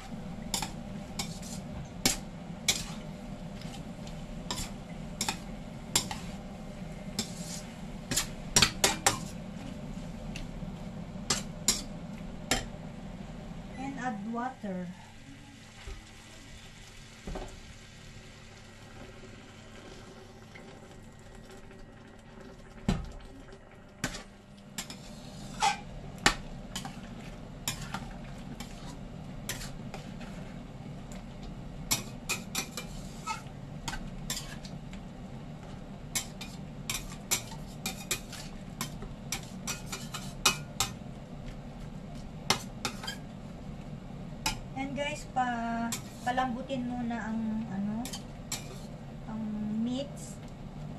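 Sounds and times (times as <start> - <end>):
metal spatula scraping a wok: 0.5 - 3.0, 4.5 - 6.4, 7.2 - 9.4, 24.8 - 25.9, 26.7 - 30.4, 31.9 - 34.7, 36.1 - 41.0, 42.6 - 43.2, 45.9 - 46.5, 48.0 - 48.9.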